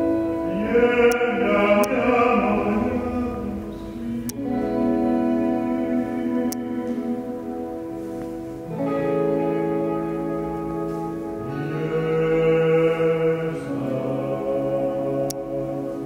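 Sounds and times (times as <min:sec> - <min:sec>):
man singing long held notes: 0:00.0 - 0:08.1, 0:11.3 - 0:16.0
ambient music: 0:00.0 - 0:16.0.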